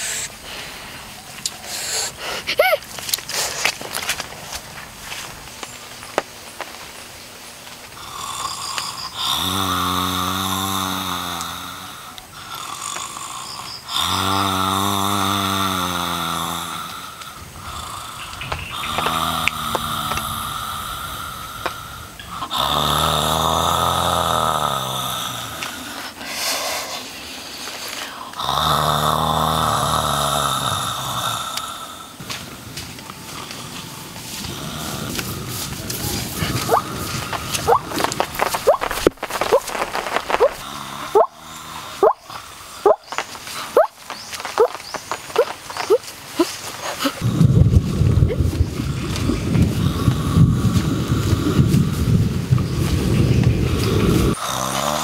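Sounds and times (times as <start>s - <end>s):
man snoring: 8.0s - 27.0s, 28.0s - 32.2s, 34.4s - 35.8s, 36.4s - 43.9s, 49.7s - 52.1s, 53.8s - 55.0s.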